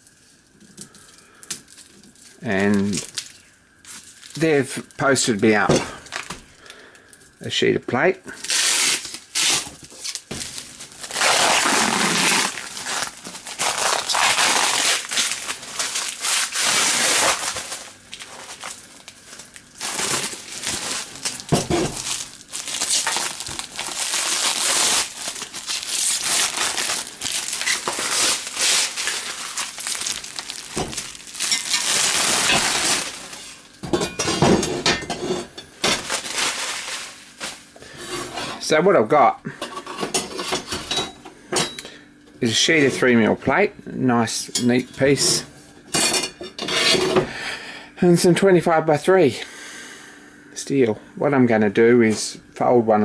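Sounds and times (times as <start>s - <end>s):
plastic wrapping crinkling: 1.6s - 5.3s, 8.3s - 33.8s, 35.8s - 37.9s.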